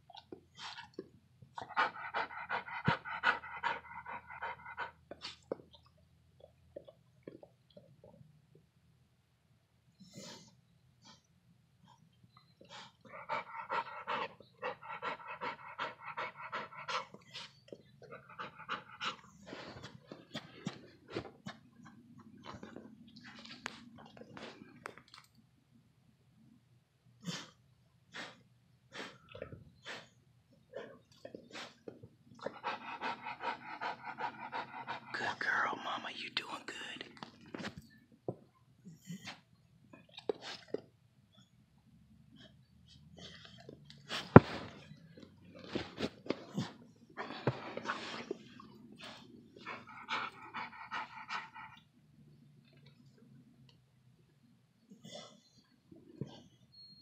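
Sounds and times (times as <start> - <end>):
dog panting rapidly: 1.6 - 5.0, 13.1 - 20.0, 32.4 - 35.2, 49.1 - 51.8
dog huffing breaths: 1.6 - 5.4, 32.4 - 35.2, 45.7 - 51.8.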